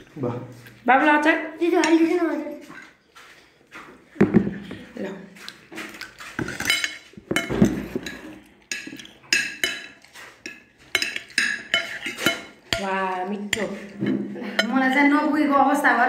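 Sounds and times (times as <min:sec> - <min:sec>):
cutlery clinking on plates: 0:04.2 - 0:12.9, 0:13.5 - 0:15.1.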